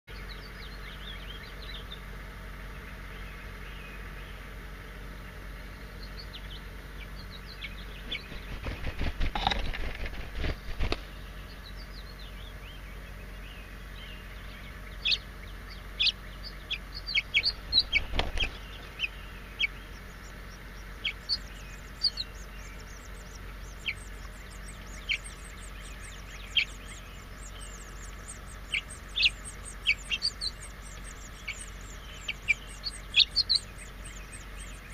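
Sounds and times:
chicks cheeping: 0.1s - 34.9s
rustling and wing flutter: 7.8s - 11.6s, 15.8s - 34.9s.

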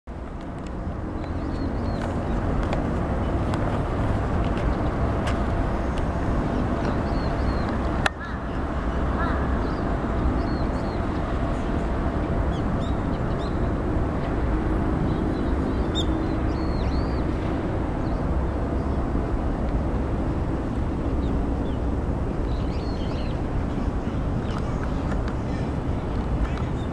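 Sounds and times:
distant traffic: 0.1s - 26.9s
wind: 0.1s - 26.9s.

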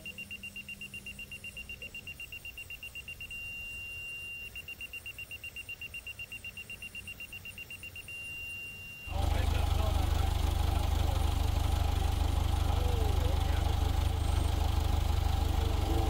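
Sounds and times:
electronic warning beeper: 0.0s - 9.1s.

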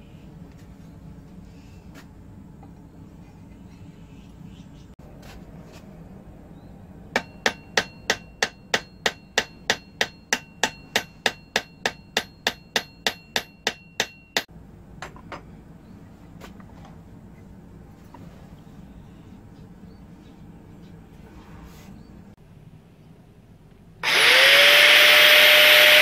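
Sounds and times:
metallic ring: 7.2s - 14.5s.

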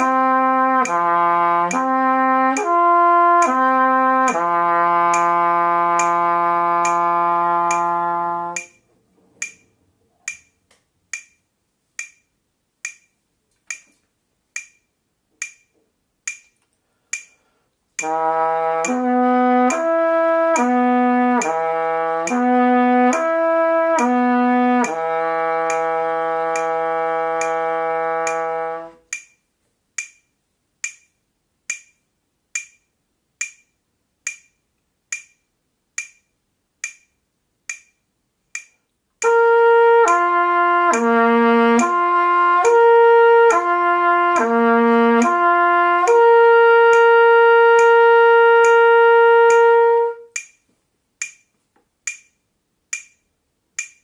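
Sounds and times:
trumpet playing slurred notes: 0.0s - 8.8s, 18.0s - 29.1s, 39.2s - 50.4s
metronome clicking: 0.0s - 54.0s.

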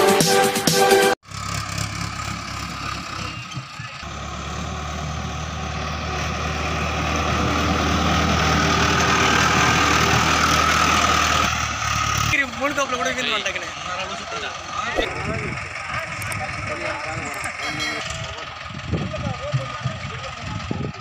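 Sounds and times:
tractor diesel engine running: 1.2s - 21.0s.

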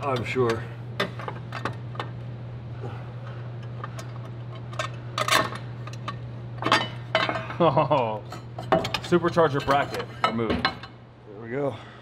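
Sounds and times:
steady low hum: 0.0s - 12.0s
metal tools clinking: 3.9s - 10.9s.

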